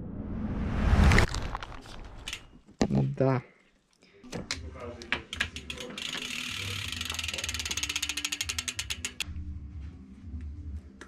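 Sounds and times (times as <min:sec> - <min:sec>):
bike hub ratchet clicking: 0:02.3 - 0:02.5, 0:05.2 - 0:09.3.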